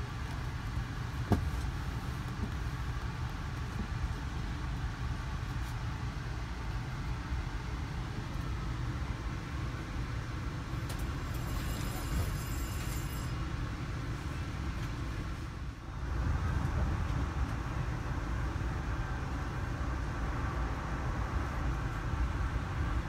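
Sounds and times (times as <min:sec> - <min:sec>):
low rumble inside train car: 0:00.0 - 0:23.0
faint high whine: 0:10.7 - 0:14.4.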